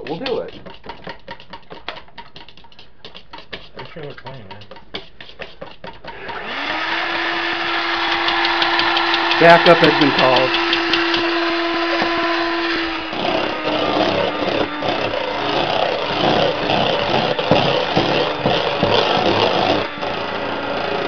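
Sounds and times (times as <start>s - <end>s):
electric hand mixer running: 6.0s - 21.0s.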